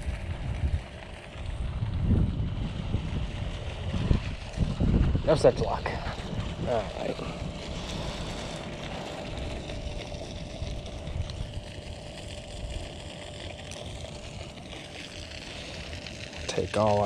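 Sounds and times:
wind rumbling on microphone: 0:00.0 - 0:17.0
steady hiss: 0:04.5 - 0:17.0.

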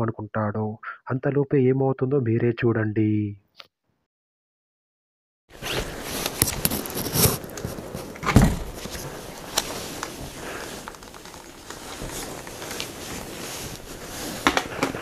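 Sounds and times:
heavy thump: 0:08.2 - 0:08.8.

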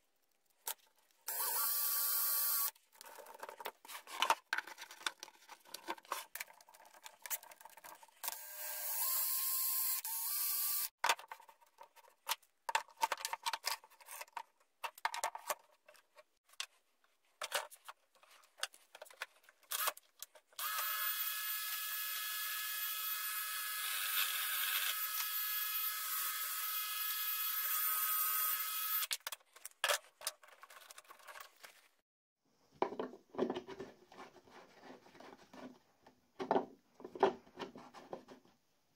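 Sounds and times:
cordless drill running: 0:01.3 - 0:02.7, 0:08.3 - 0:10.9, 0:20.6 - 0:29.1
wood and tools knocking: 0:32.7 - 0:34.5, 0:35.2 - 0:38.5.

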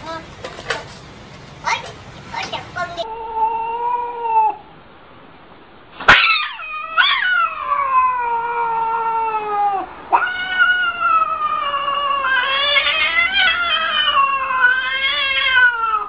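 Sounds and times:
cat yowling: 0:03.0 - 0:04.7, 0:06.1 - 0:16.0.

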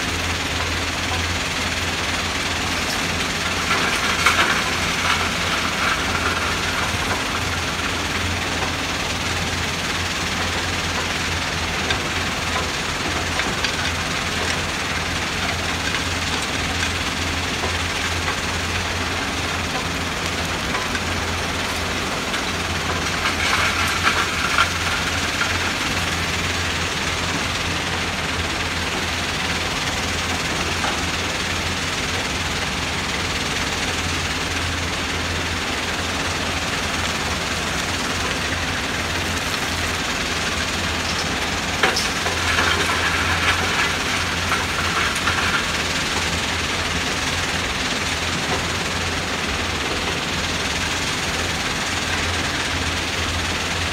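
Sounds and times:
diesel engines droning: 0:00.0 - 0:53.9.

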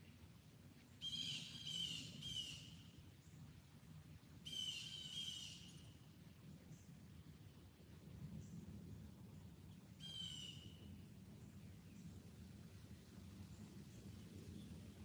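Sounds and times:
songbird calling: 0:01.0 - 0:02.8, 0:04.4 - 0:05.9, 0:10.0 - 0:10.9.

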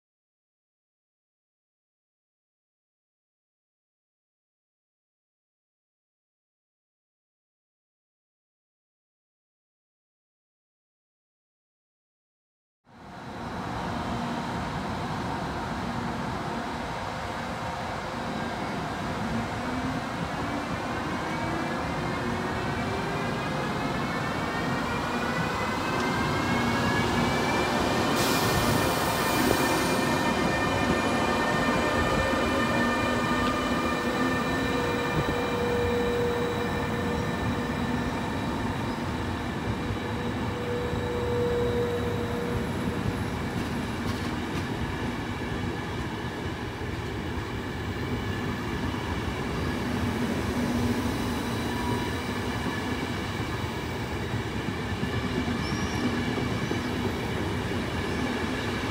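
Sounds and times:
electric locomotive whine: 0:13.0 - 0:58.9
train coaches rumbling on track: 0:13.2 - 0:58.9.

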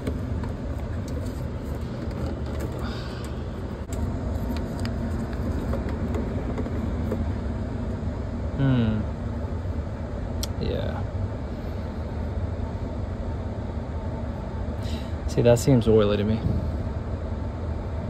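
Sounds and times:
air conditioning hum: 0:00.0 - 0:18.0.

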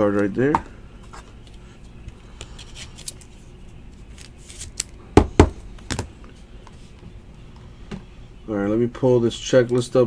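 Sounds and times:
card in plastic sleeve rustling: 0:01.9 - 0:05.0.

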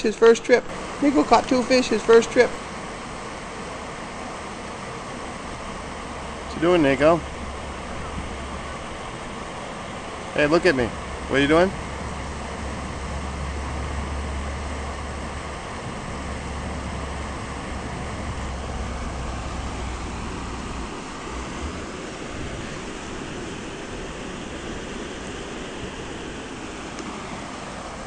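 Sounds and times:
small waterfall rushing: 0:00.0 - 0:28.0
low rumble: 0:10.9 - 0:24.8.

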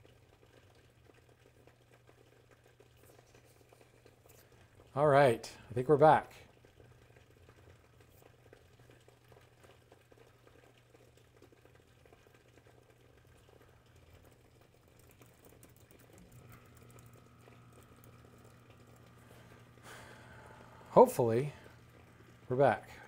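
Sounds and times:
low steady hum: 0:01.9 - 0:23.0.

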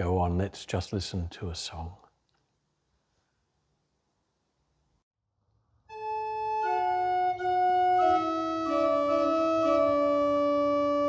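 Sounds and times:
organ playing slow chords: 0:05.9 - 0:11.0.

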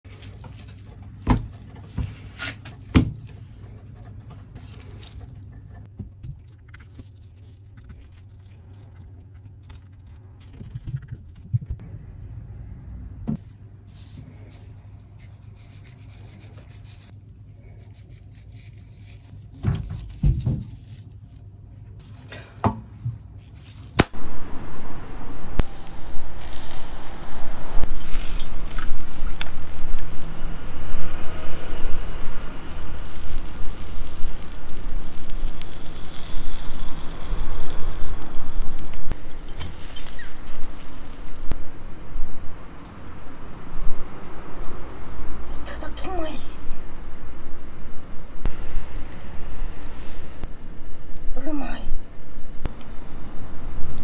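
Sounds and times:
low steady hum: 0:23.0 - 0:54.0
rushing and crackling noise: 0:24.0 - 0:54.0.

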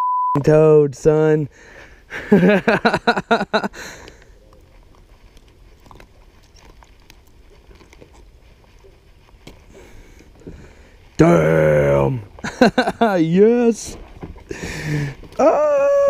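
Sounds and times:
hands handling fish: 0:04.0 - 0:10.5
person shouting: 0:15.4 - 0:16.0.

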